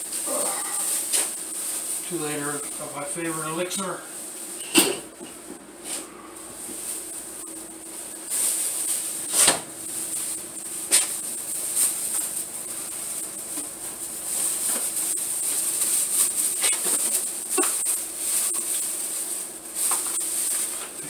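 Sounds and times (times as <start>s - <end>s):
plastic bags rustling: 0.0s - 5.5s, 6.4s - 21.0s.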